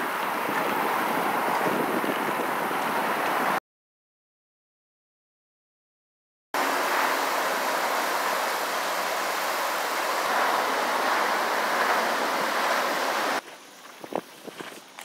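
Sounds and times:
creek water rushing: 0.0s - 3.6s, 6.6s - 13.4s.

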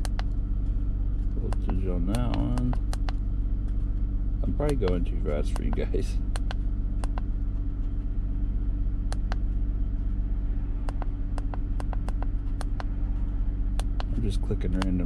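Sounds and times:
scanner button clicks: 0.0s - 0.3s, 1.5s - 3.2s, 4.6s - 7.3s, 9.1s - 9.4s, 10.9s - 12.9s
car engine idling: 0.0s - 15.0s.

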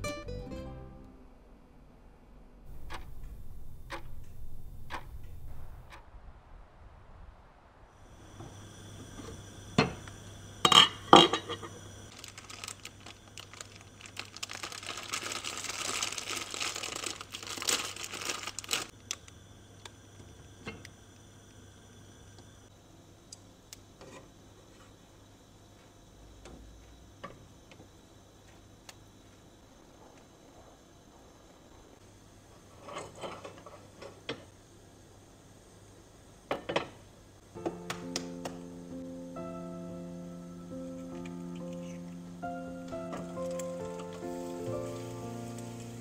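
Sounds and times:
packet rustling and crinkling: 12.1s - 19.2s.

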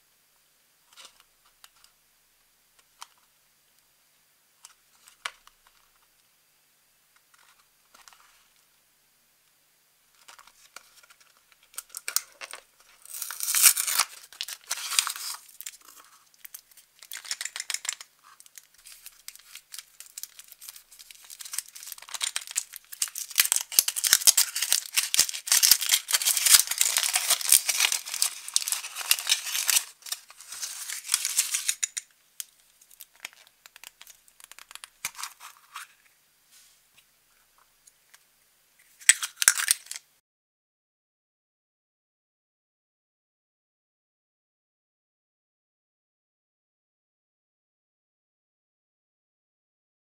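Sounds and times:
plastic capsule rustle: 10.2s - 36.0s, 39.0s - 40.0s
foil crinkling: 11.0s - 35.9s.

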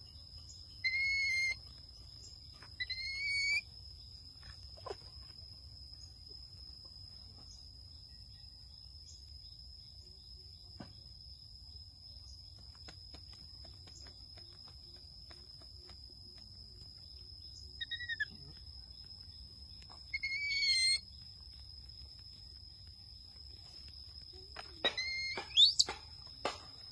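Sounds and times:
high insect drone: 0.0s - 26.9s
baby monkey squeaky calls: 0.8s - 1.6s, 2.8s - 3.6s, 17.8s - 18.3s, 20.1s - 21.0s, 24.8s - 25.9s.

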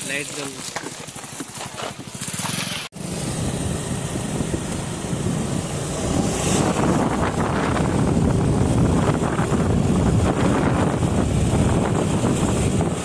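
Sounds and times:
scooter engine running: 0.0s - 13.0s
wind noise on microphone: 3.4s - 13.0s.

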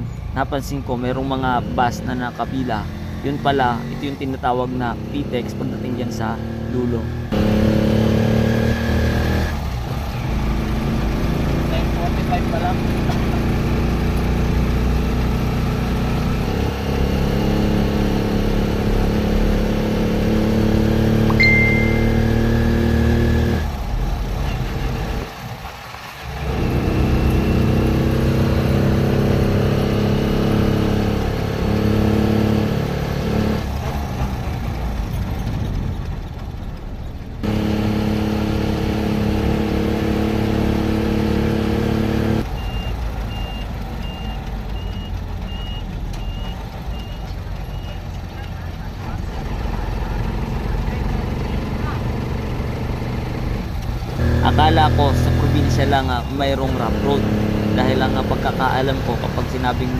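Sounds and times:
vehicle engine accelerating: 0.0s - 59.9s
short high beep: 21.3s - 22.9s.

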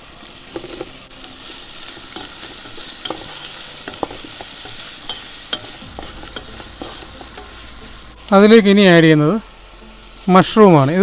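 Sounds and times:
food sizzling in oil: 0.0s - 11.0s
spatula tapping pan: 2.2s - 7.6s.

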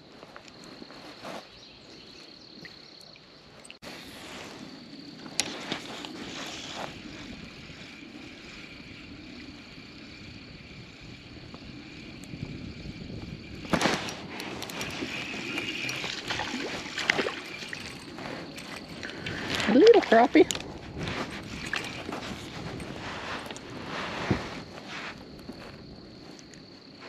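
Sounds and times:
fish splashing: 13.7s - 20.3s
fishing reel being cranked: 14.5s - 20.7s.

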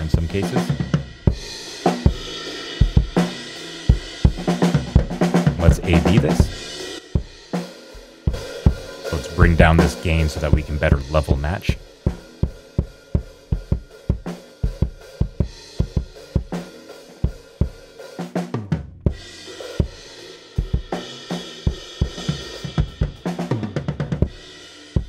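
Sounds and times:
snare drum: 4.2s - 6.6s, 9.1s - 11.8s.

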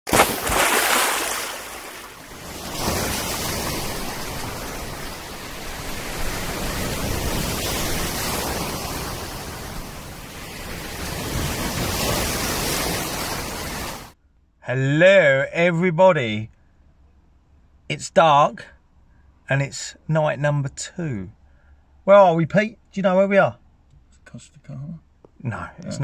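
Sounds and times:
sea waves breaking in surf: 0.1s - 14.2s.

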